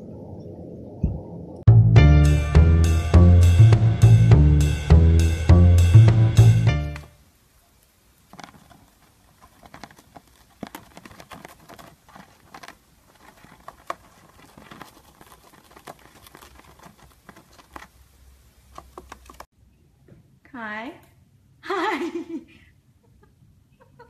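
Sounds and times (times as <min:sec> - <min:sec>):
parrot shredding paper: 0:08.2 - 0:19.5.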